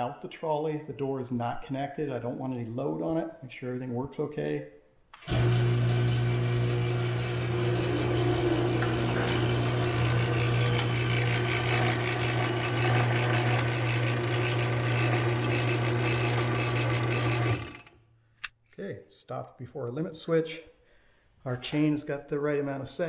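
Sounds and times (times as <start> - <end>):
garage door opener motor hum: 5.2 - 18.0.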